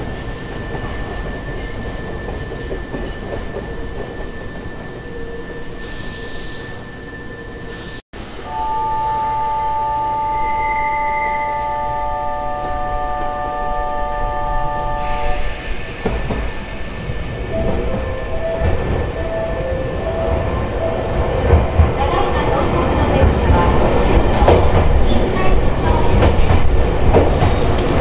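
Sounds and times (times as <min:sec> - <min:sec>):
electric train hissing running noise: 0:05.8 - 0:28.0
steady chord of tones: 0:08.2 - 0:15.5, 0:17.4 - 0:23.2.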